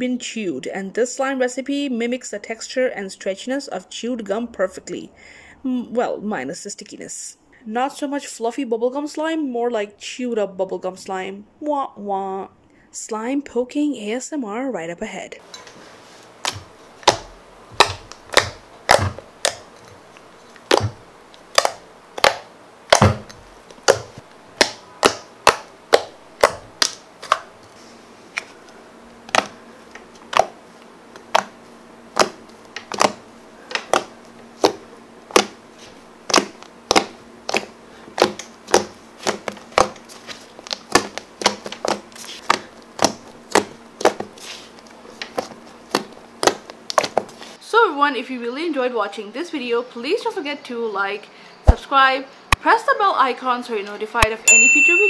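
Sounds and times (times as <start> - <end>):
slime squelching with wet pops: 16.4 - 19.6, 20.6 - 27.5, 29.3 - 29.6, 30.3 - 30.6, 31.2 - 35.6, 36.3 - 44.5, 45.2 - 47.4.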